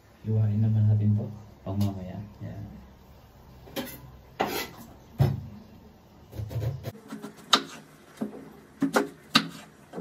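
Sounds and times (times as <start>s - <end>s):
knife chopping on wooden board: 6.4s - 7.8s, 8.8s - 10.0s.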